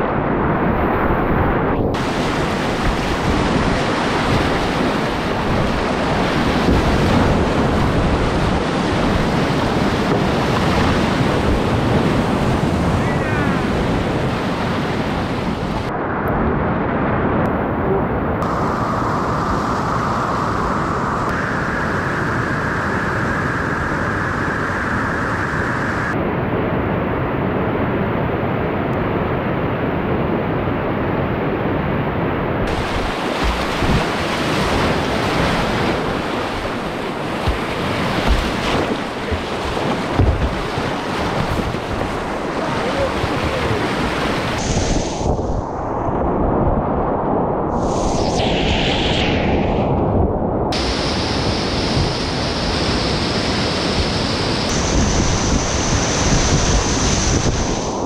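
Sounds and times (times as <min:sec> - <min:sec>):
wind buffeting microphone: 0:00.0 - 0:26.2, 0:32.6 - 0:58.0
whitewater rapids rushing: 0:32.7 - 0:45.0
short thumps: 0:37.4 - 0:42.3.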